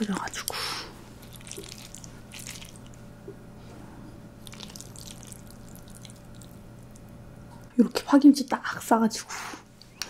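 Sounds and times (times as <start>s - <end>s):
chopsticks stirring wet noodles: 1.2s - 3.0s, 4.4s - 7.1s.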